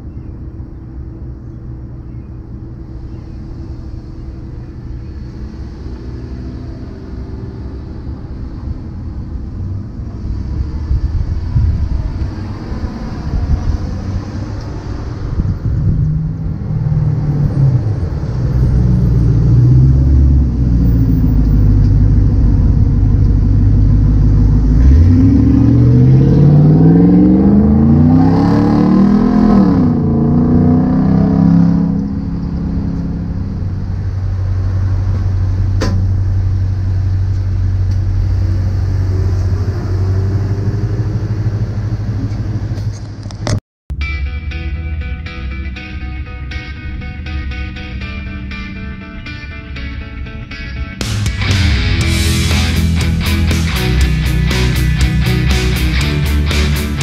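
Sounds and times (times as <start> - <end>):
car traffic engines: 0.0 - 57.0
car engine revving hard: 24.4 - 33.8.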